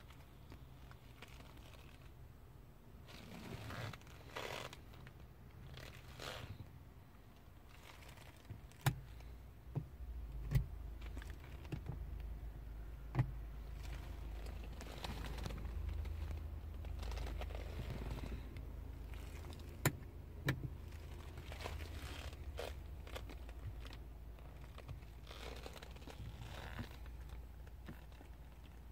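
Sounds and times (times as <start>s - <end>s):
soft rustling: 0.0s - 2.4s, 3.0s - 19.8s, 20.6s - 28.9s
low steady hum: 0.0s - 28.9s.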